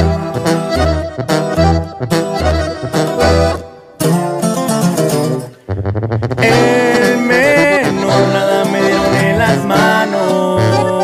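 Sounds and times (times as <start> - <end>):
bass: 0.0 - 11.0
guitar: 0.0 - 11.0
lead melody: 0.0 - 11.0.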